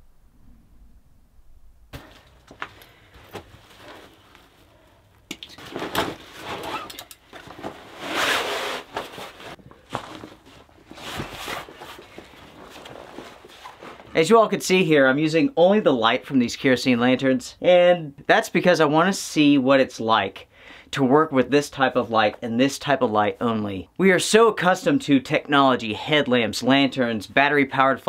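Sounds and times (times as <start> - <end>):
fabric and bag rustling: 2.0 - 4.8, 5.6 - 14.2.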